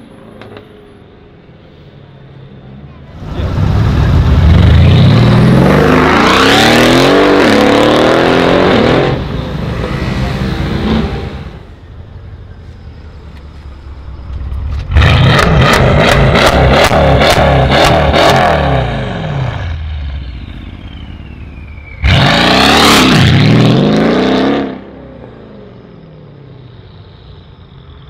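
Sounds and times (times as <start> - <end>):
car engine accelerating hard: 3.2 - 11.7, 14.6 - 20.4, 22.0 - 25.0
loud engine revving: 3.2 - 11.7, 14.9 - 19.8, 22.0 - 24.9.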